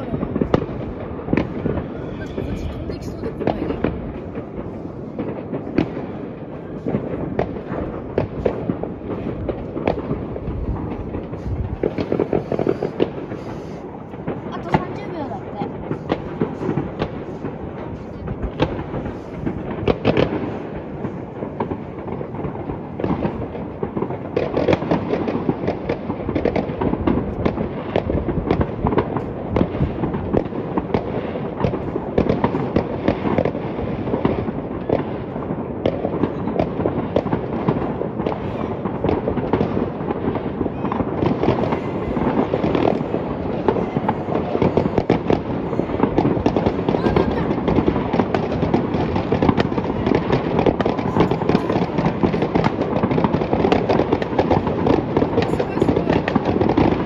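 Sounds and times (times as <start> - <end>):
fireworks bangs and crackles: 0.0 - 57.0.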